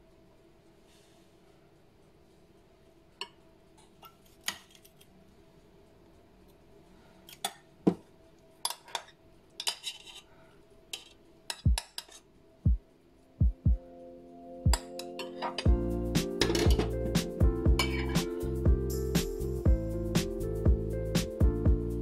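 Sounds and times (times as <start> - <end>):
cutlery clinking on glass dishes: 8.6 - 10.2.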